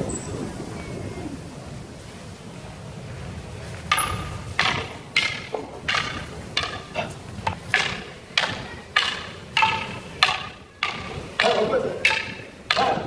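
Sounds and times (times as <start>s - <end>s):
sticks clacking together: 3.9s - 13.0s.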